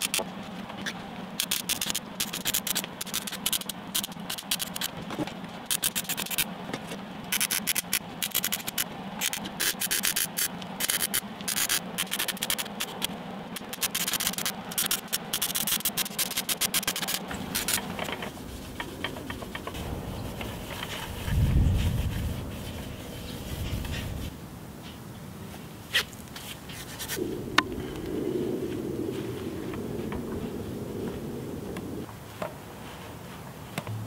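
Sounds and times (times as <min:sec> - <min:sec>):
steady hum: 0:00.0 - 0:25.9, 0:26.8 - 0:34.0
quiet rustle: 0:00.2 - 0:34.0
welding arc crackling: 0:07.3 - 0:18.2.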